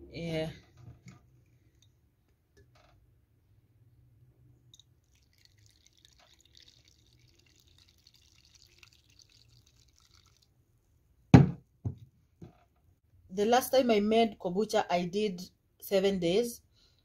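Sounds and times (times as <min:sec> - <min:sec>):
liquid trickling and splashing: 0:04.7 - 0:10.6
loud thump: 0:11.4 - 0:12.0.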